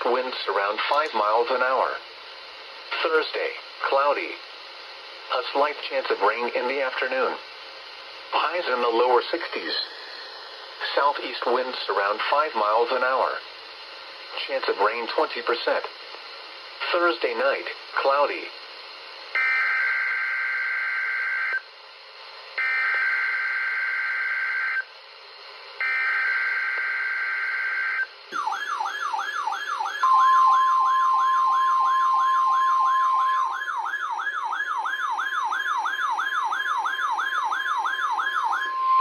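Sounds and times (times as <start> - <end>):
steady warning alarm tone: 19.3 - 21.6, 22.6 - 24.9, 25.8 - 39.0
siren-like warble: 25.8 - 39.0.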